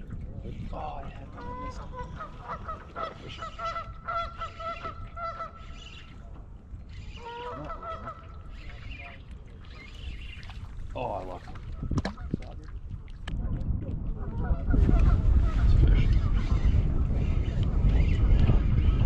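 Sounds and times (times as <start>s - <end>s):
geese honking: 1.4s - 5.9s, 7.1s - 8.8s.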